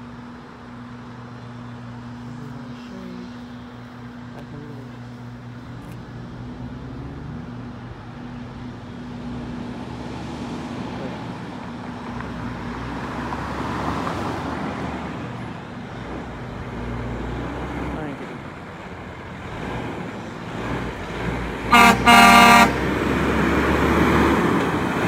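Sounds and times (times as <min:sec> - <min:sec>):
low engine hum: 0:00.0 - 0:25.0
car passing by: 0:05.8 - 0:25.0.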